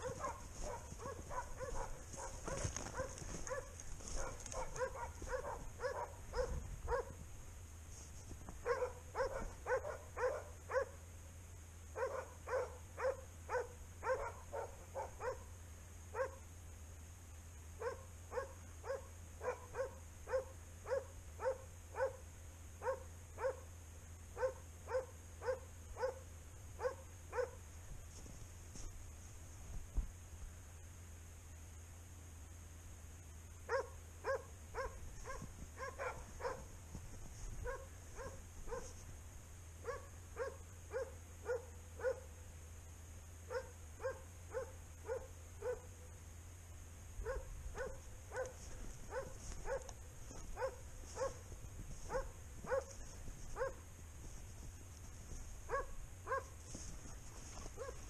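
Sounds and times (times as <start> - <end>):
dogs barking: 0.0 - 7.3, 8.6 - 11.1, 11.9 - 16.6, 17.8 - 27.7, 33.6 - 39.0, 39.7 - 42.4, 43.4 - 46.2, 47.2 - 58.0
rustle of brush: 0.0 - 58.0.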